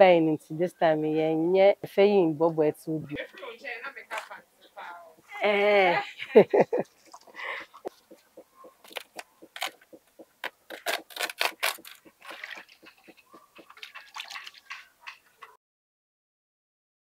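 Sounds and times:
woman laughing: 5.3 - 7.9
leaves rustling and crinkling: 8.8 - 15.5.

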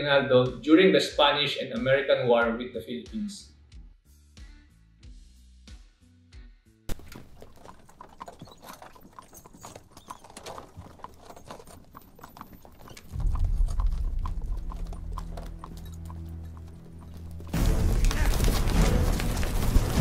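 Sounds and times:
hooves clip-clopping on road: 6.9 - 20.0
loud low rumble: 13.1 - 15.7.

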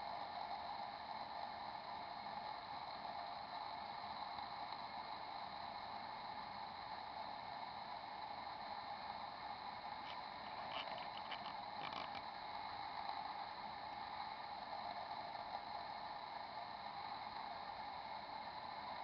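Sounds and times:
room tone hiss: 0.0 - 19.0.

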